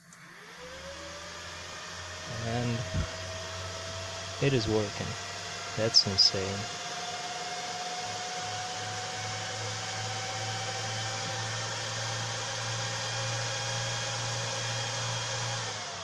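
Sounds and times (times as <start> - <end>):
cooling fans whirring with whine: 0.0 - 16.0
low hum: 2.3 - 3.8.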